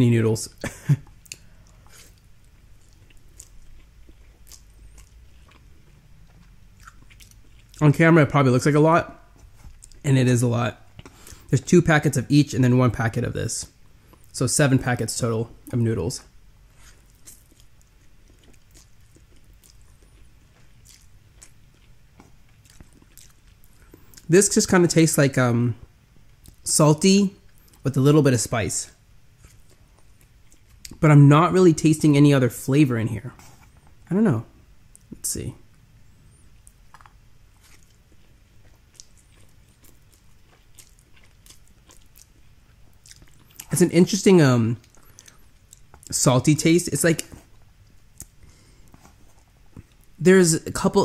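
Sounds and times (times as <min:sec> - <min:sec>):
person chewing noodles: 0:01.0 - 0:07.8, 0:09.2 - 0:10.0, 0:13.8 - 0:14.3, 0:16.6 - 0:24.3, 0:29.3 - 0:31.0, 0:36.0 - 0:43.7, 0:44.8 - 0:46.1, 0:47.2 - 0:50.2.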